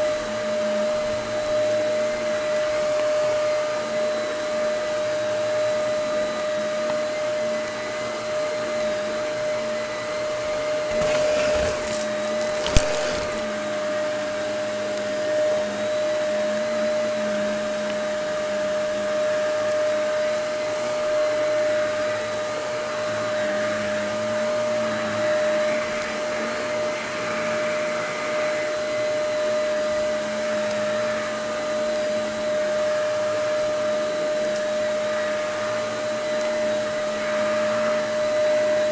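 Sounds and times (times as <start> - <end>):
vacuum cleaner motor whining: 0.0 - 13.8.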